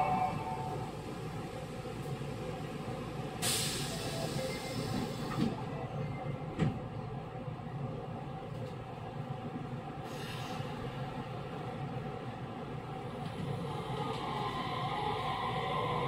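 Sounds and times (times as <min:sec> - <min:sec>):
train interior rumble: 0:00.0 - 0:16.0
air hiss: 0:03.4 - 0:05.3.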